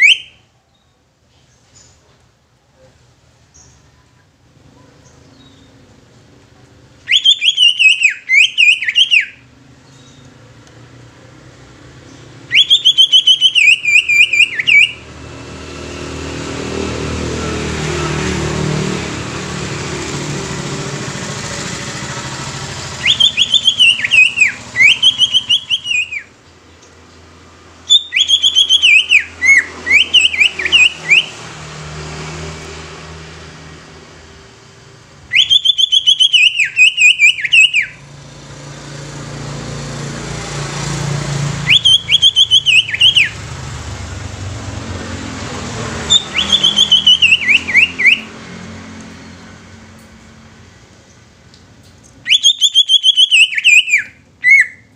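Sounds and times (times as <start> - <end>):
bird whistling rapid notes: 0.0 - 0.4, 7.1 - 9.4, 12.4 - 15.0, 22.9 - 26.3, 27.8 - 31.4, 35.3 - 38.0, 41.6 - 43.4, 46.0 - 48.3, 52.2 - 54.9
passing vehicle engine: 3.6 - 54.8.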